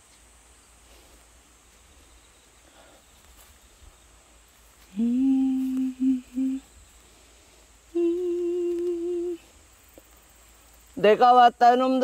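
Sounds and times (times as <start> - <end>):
person humming: 4.8 - 6.9, 7.8 - 9.6.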